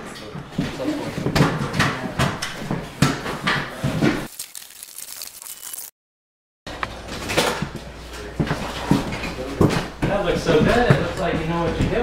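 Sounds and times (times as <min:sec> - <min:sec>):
renovation knocks and clatter: 0:00.5 - 0:04.3.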